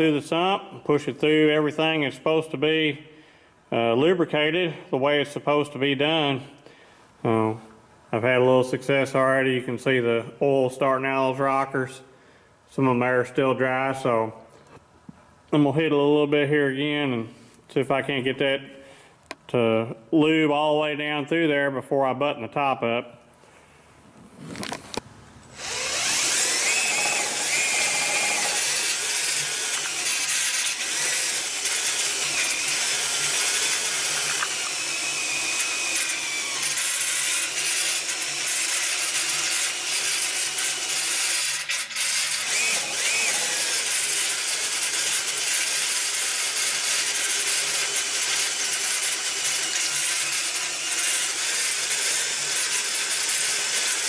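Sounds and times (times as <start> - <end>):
electric drill running: 25.5 - 54.0.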